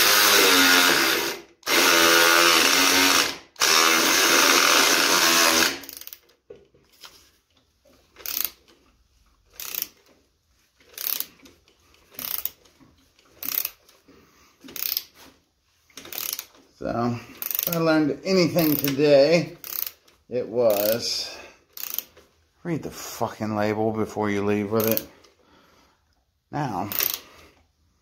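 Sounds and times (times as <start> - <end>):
power drill whining: 0.0 - 6.2
ratchet wrench clicking: 2.6 - 6.3, 8.2 - 8.7, 9.5 - 10.1, 10.8 - 11.5, 12.1 - 12.6, 13.3 - 13.9, 14.7 - 15.2, 16.0 - 16.6, 17.3 - 17.9, 18.6 - 19.0, 19.6 - 21.1, 21.7 - 22.2, 24.8 - 25.1, 26.9 - 27.3.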